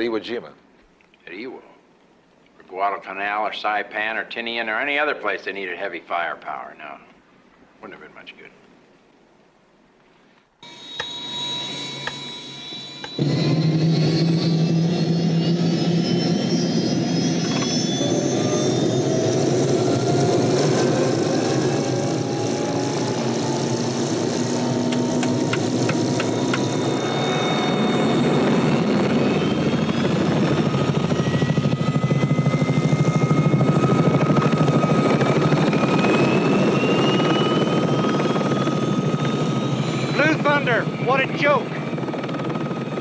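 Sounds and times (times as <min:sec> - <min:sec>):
helicopter rotor beat: 0:10.6 - 0:43.0
helicopter turbine whine: 0:10.6 - 0:43.0.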